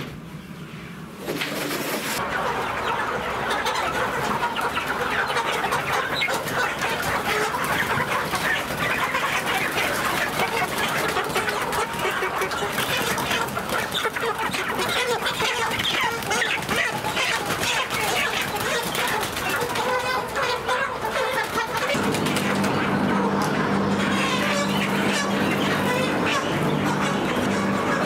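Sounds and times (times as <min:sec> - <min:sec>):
chickens clucking and squawking: 0:00.0 - 0:28.0
wings flapping: 0:01.2 - 0:02.2, 0:06.2 - 0:23.5.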